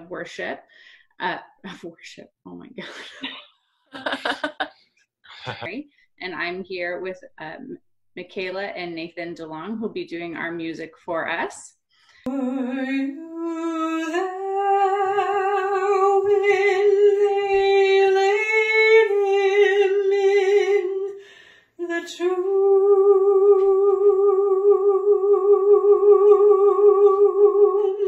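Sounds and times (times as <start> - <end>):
woman singing with vibrato: 12.3 - 28.0.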